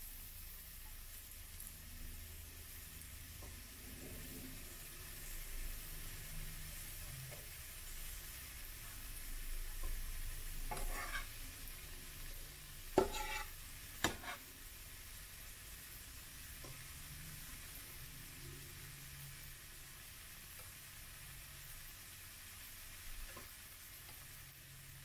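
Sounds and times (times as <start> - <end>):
pancake sizzling in oil: 0.0 - 25.0.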